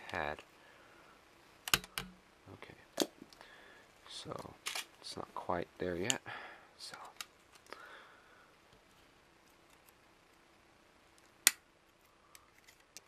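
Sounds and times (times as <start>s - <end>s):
circuit board snapping: 1.6s - 2.1s, 11.4s - 11.6s.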